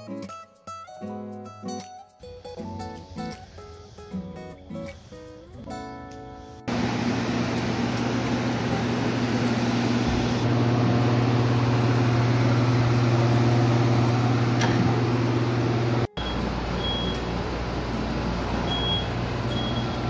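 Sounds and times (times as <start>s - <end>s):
carpet-drying blowers whirring: 6.7s - 20.0s.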